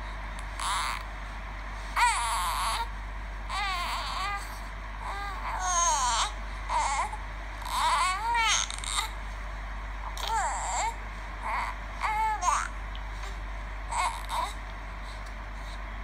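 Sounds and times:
baby crying through small speaker: 0.6s - 1.0s, 2.0s - 2.9s, 3.5s - 9.2s, 10.2s - 12.7s, 13.9s - 14.6s.

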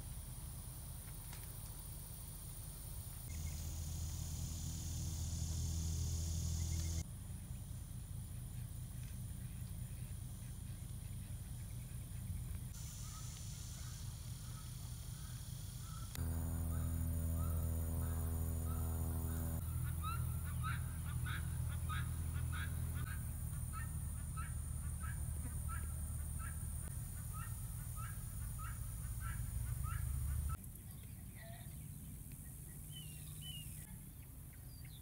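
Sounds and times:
steady low hum: 0.0s - 34.7s
geese honking: 13.0s - 30.6s.

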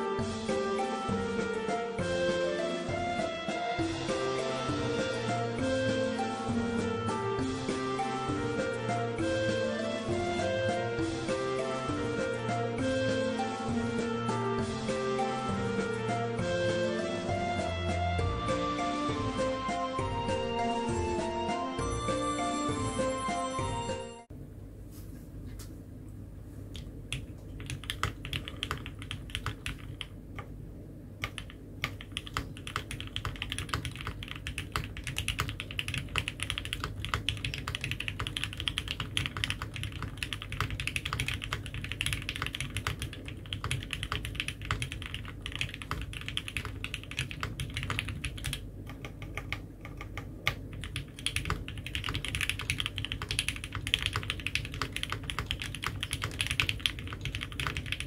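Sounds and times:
mechanical keyboard typing: 26.8s - 30.5s, 31.2s - 58.0s.

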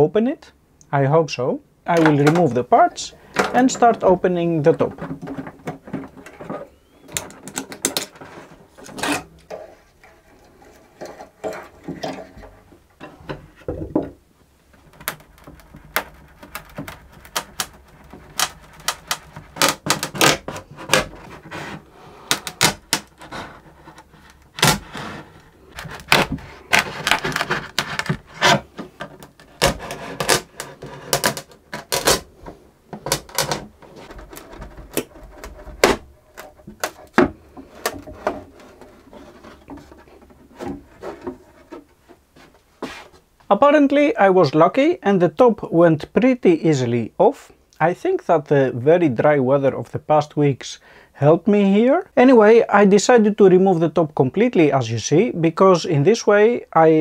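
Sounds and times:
wood seam cracking and clicking: 4.8s - 12.6s, 14.7s - 21.5s, 22.3s - 32.3s, 32.9s - 41.9s.

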